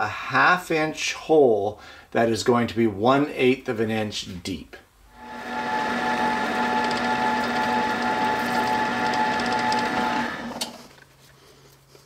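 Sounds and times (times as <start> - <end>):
drill press humming: 5.2 - 10.8.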